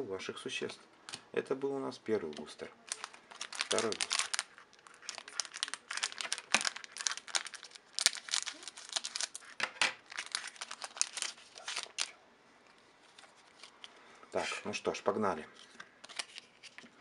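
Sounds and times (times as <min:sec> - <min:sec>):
foil pack crinkling: 0:02.9 - 0:12.2.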